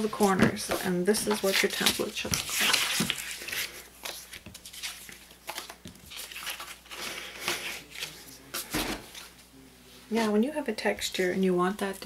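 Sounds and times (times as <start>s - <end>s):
stiff paper rustling and scraping: 0.0s - 9.3s.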